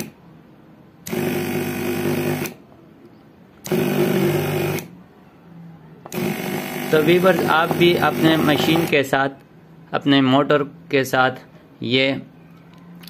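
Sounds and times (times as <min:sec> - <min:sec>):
small pump motor humming: 0:06.1 - 0:08.9.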